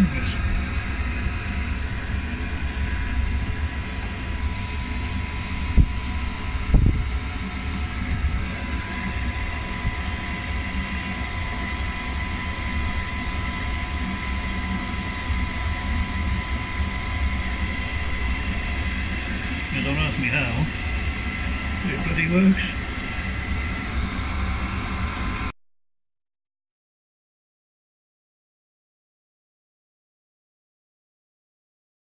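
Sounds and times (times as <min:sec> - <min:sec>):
diesel air heater running: 0:00.0 - 0:25.5.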